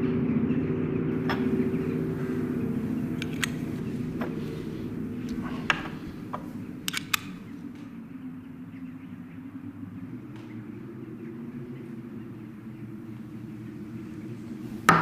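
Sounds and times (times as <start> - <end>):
low steady drone: 0.0 - 15.0
metal instruments clicking on tabletop: 1.3 - 4.6, 5.3 - 7.4.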